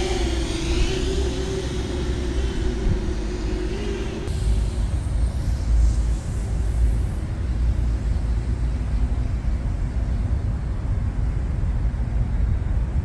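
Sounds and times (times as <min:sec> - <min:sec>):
drone hum: 0:00.0 - 0:11.5.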